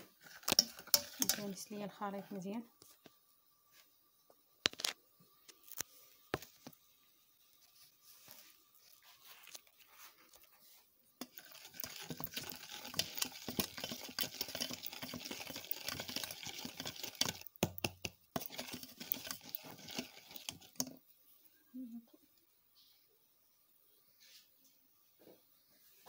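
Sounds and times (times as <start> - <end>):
whisk clicking in a bowl: 0.4 - 1.6, 11.2 - 21.0.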